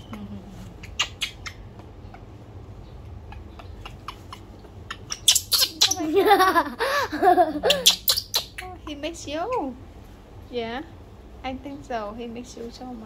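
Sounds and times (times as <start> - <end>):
baby monkey clicks and squeaks: 0.0 - 6.2, 7.6 - 9.8.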